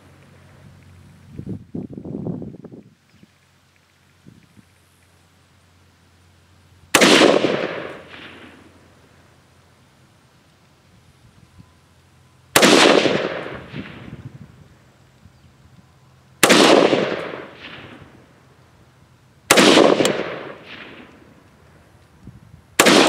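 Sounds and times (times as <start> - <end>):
rifle shots with rolling echo: 6.8 - 9.0, 12.5 - 14.3, 16.4 - 18.4, 19.4 - 21.5, 22.8 - 23.0.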